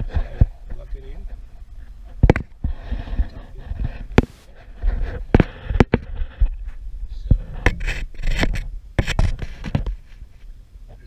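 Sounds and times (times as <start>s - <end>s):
hands scraping plastic parts: 7.3s - 10.2s.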